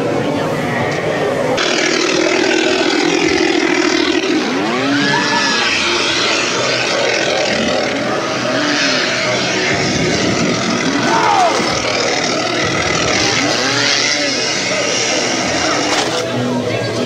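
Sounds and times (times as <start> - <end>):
dense noisy background: 0.0 - 17.0
chainsaw engine revving: 1.6 - 16.4.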